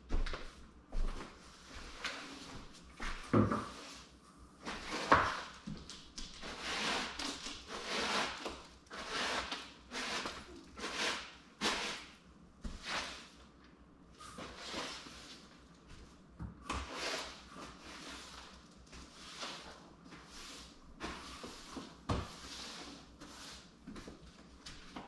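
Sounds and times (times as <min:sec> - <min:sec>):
broom sweeping soil on floor: 0:06.4 - 0:12.1, 0:12.7 - 0:13.4.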